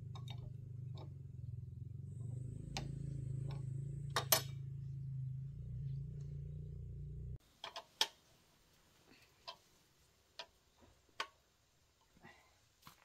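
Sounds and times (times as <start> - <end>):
steady low hum: 0.0 - 7.4.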